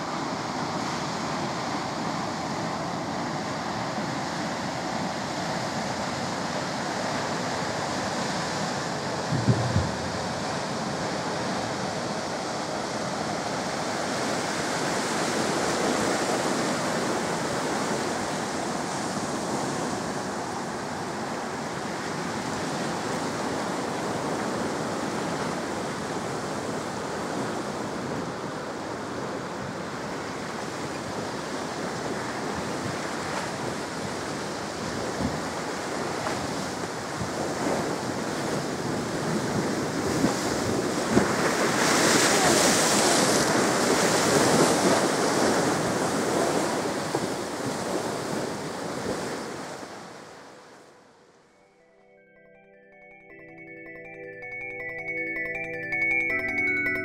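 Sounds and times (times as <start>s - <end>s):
waves washing along bank: 0.0s - 50.8s.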